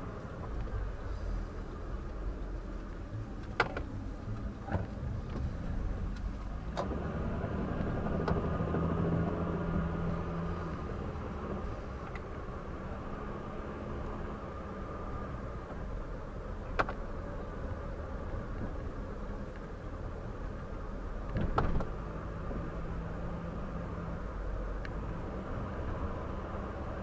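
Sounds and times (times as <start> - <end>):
road and engine rumble: 0.0 - 27.0.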